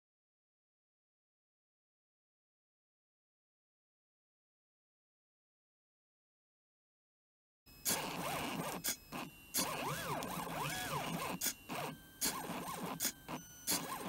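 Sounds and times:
stepper motors buzzing whine: 0:07.7 - 0:14.0.

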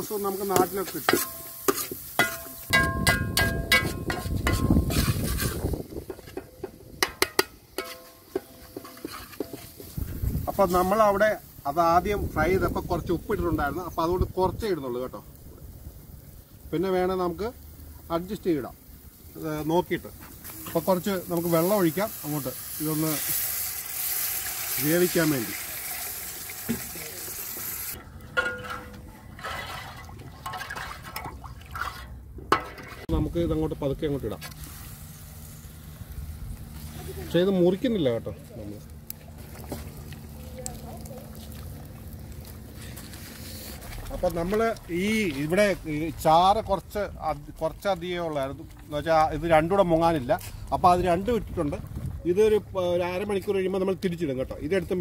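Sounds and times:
metal ladle stirring and clinking: 0:00.5 - 0:10.2, 0:28.3 - 0:33.1
metal spatula scraping a pot: 0:00.6 - 0:10.2, 0:28.4 - 0:33.1
water pouring into pot: 0:21.1 - 0:28.0.

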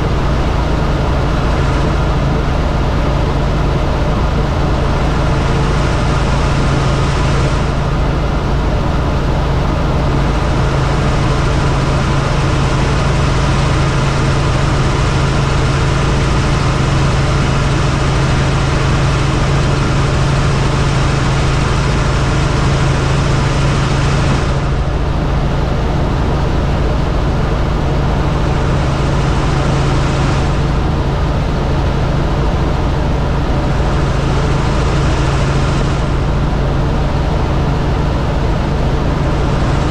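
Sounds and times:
helicopter engine and rotor drone: 0:00.0 - 0:39.9.

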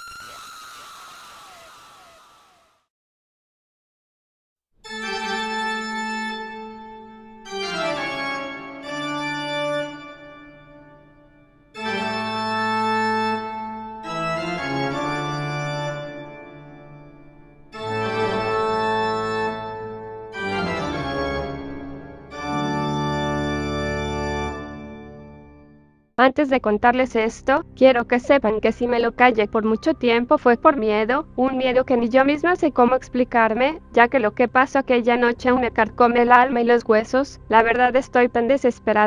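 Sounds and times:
organ playing held chords: 0:04.9 - 0:11.2, 0:11.8 - 0:25.8.

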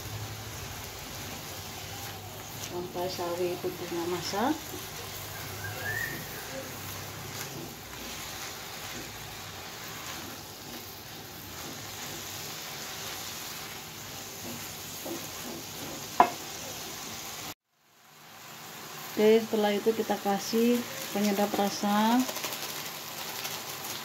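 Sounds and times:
food sizzling in a wok: 0:00.0 - 0:24.0
spatula scraping and clatter: 0:03.5 - 0:16.6.

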